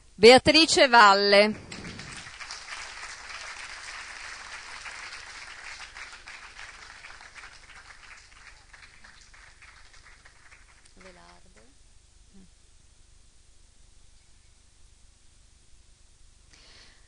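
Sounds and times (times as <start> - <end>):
audience applauding: 1.5 - 11.4.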